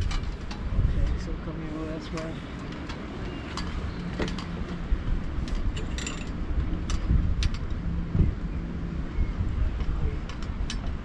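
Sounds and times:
metal clinks and knocks: 5.4 - 7.6.

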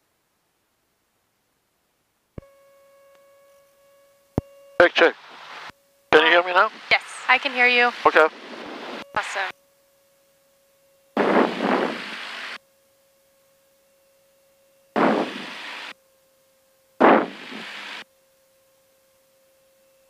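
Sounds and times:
faint steady hum: 0.0 - 20.0
intercom hiss bursts: 4.8 - 9.5, 11.2 - 12.6, 15.0 - 15.9, 17.0 - 18.0.

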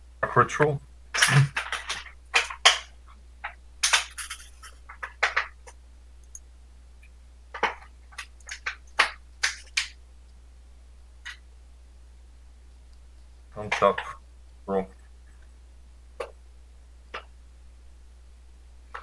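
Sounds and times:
cards clicking and snapping: 1.2 - 5.8, 7.5 - 10.0.

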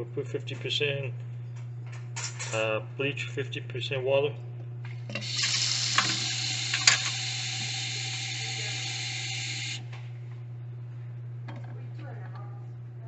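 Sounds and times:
water running into plastic bottle: 5.2 - 9.8.

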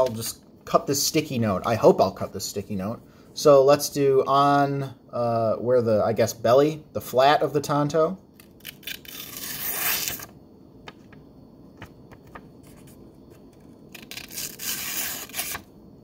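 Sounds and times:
knife blade slicing paper: 8.6 - 10.3, 14.0 - 15.7.

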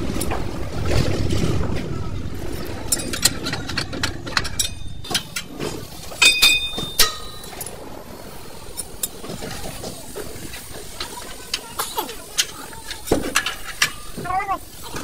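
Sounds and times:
metal tools clinking and knocking: 2.7 - 7.8.

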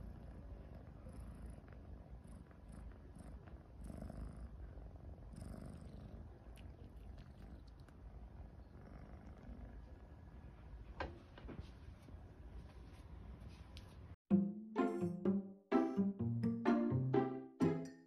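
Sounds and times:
kitten purring: 0.0 - 10.6.

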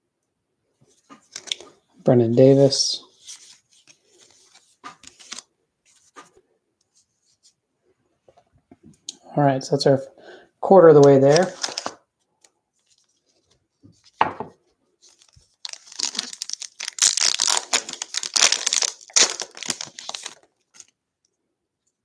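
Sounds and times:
foil wrapper crinkling and tearing: 1.3 - 1.7, 11.2 - 12.0, 15.1 - 21.0.

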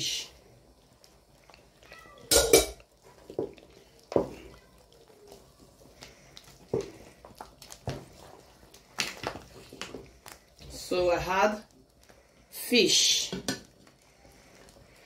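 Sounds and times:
wooden spoon stirring thick soup: 0.0 - 15.0.

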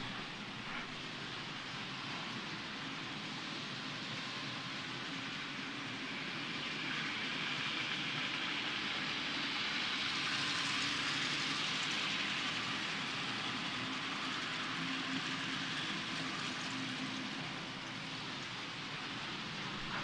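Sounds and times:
model train motor whirring: 0.0 - 20.0.

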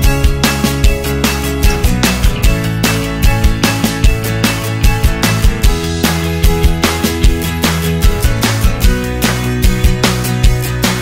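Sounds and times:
steady drum beat: 0.0 - 9.1
sustained instrumental tones: 0.7 - 7.2.

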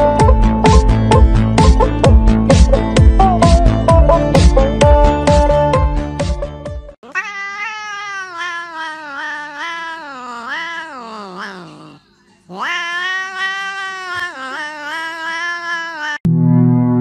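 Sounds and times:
cat yowling: 7.0 - 16.3.

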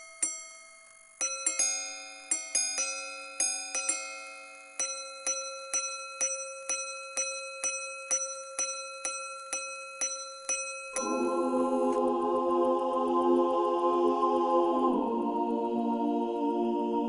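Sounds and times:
watch gongs chiming: 0.0 - 13.2.

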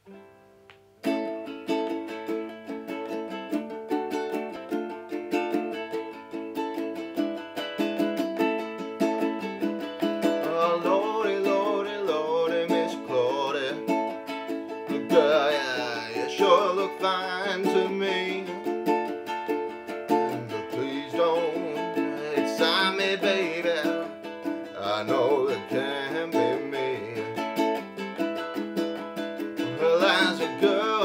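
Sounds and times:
ukulele strumming chords: 0.0 - 31.0
man singing: 10.2 - 19.0, 20.1 - 27.8, 29.6 - 31.0.

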